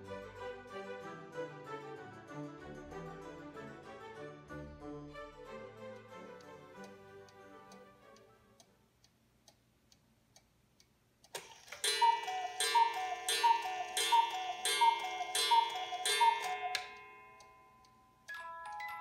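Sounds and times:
clock movement clicking: 6.0s - 19.0s
clock pendulum ticking: 6.0s - 19.0s
cuckoo clock calls: 11.4s - 19.0s.

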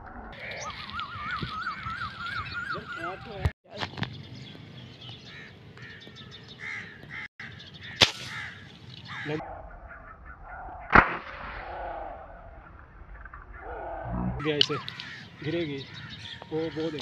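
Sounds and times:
crows cawing: 0.4s - 3.4s, 5.2s - 10.9s, 11.6s - 17.0s
air rifle shot: 8.0s - 8.6s, 10.9s - 12.4s.

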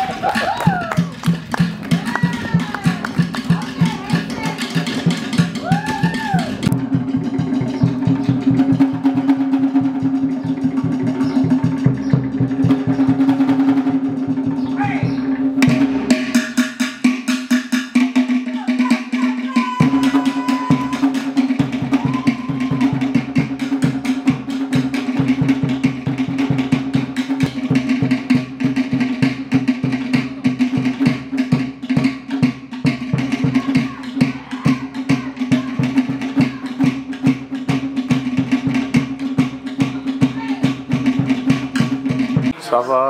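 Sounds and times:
fast hand drumbeat: 0.0s - 43.0s.

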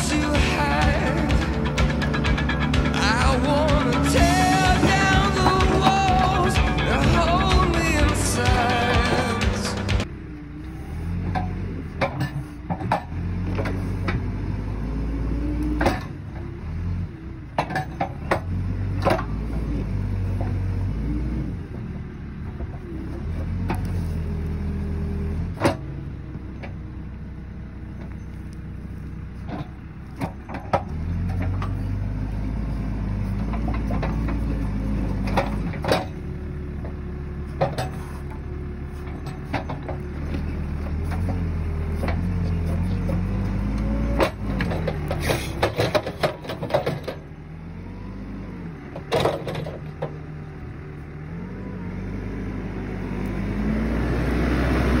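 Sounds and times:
sharp knocks and clanks: 0.0s - 10.1s, 33.4s - 36.2s, 44.1s - 47.3s
diesel engine revving under load: 0.0s - 55.0s.

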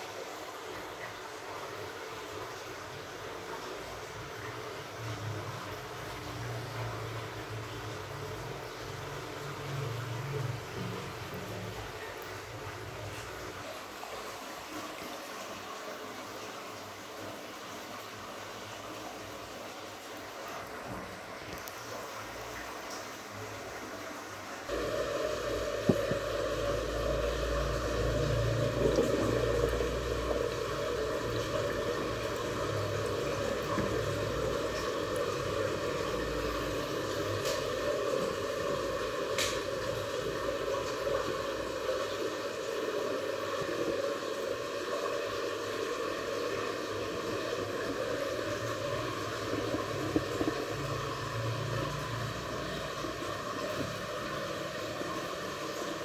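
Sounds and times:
constant hiss: 0.0s - 56.0s
low hum: 24.7s - 42.0s.

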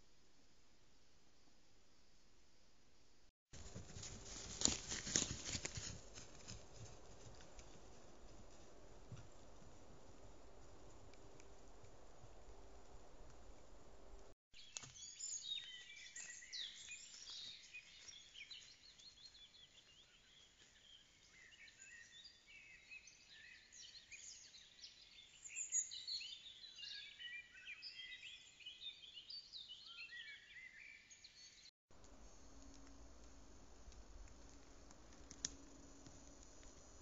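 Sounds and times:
songbirds singing and chirping: 14.6s - 31.7s.

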